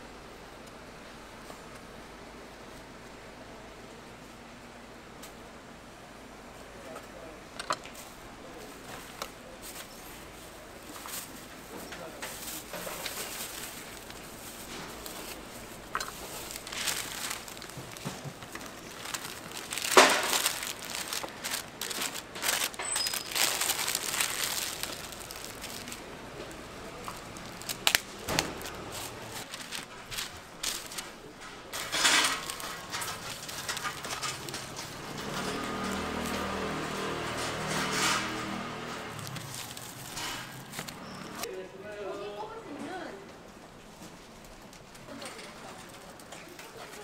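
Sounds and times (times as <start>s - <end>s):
plastic bag and paper crinkling: 7.9s - 41.5s.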